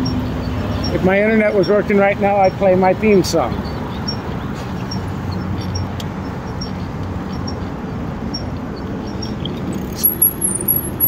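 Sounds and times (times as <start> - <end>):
metallic jingles: 9.8 - 11.0.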